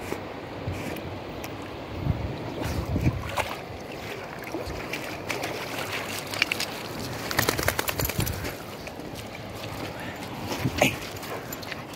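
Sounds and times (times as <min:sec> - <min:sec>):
river water trickling and lapping: 0:00.0 - 0:11.9
dog paws splashing on wet stones: 0:02.7 - 0:11.9.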